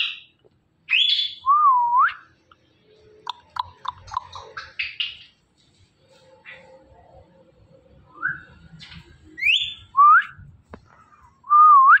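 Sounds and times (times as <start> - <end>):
parrot whistling: 9.4 - 10.4.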